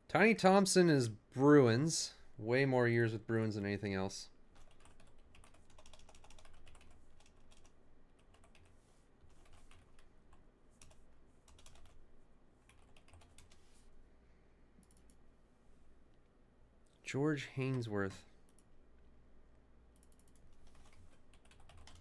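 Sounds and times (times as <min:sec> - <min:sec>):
typing on computer keyboard: 0:04.6 - 0:08.7, 0:09.3 - 0:10.1, 0:10.8 - 0:12.0, 0:12.7 - 0:13.6, 0:20.0 - 0:22.0.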